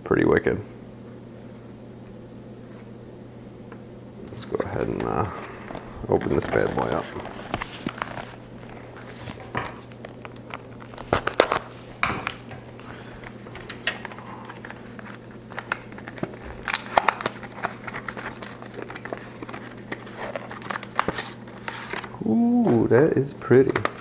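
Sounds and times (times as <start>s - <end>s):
packaging crinkling and rustling: 4.4s - 22.2s, 23.6s - 24.0s.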